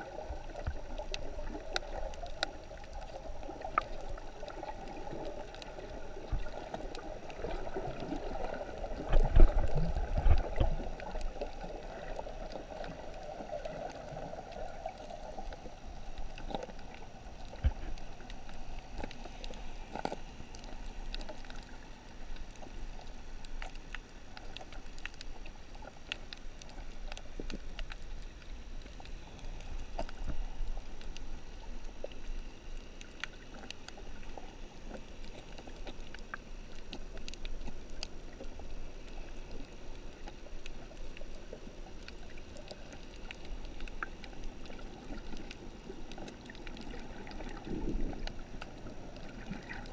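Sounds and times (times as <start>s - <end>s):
muffled underwater rush: 0.0s - 28.2s, 37.6s - 49.9s
faint clicks and crackles: 0.0s - 49.9s.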